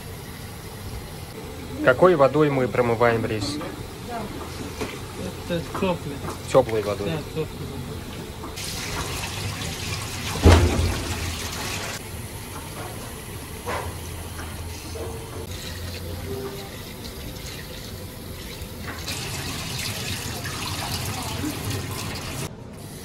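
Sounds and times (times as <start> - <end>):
water running from a tap: 8.5 - 23.0
heavy thump: 10.4 - 12.0.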